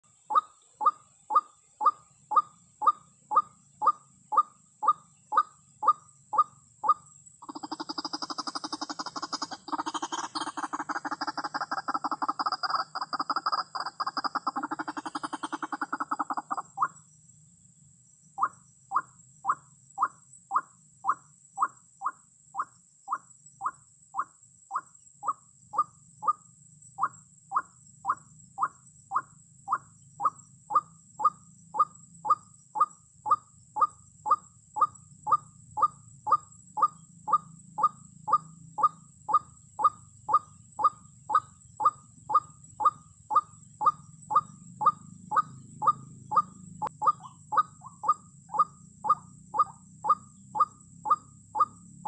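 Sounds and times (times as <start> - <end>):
rapid bird chattering: 0.1 - 17.2, 18.4 - 51.8
waterhen calling: 0.3 - 17.0, 42.3 - 51.7.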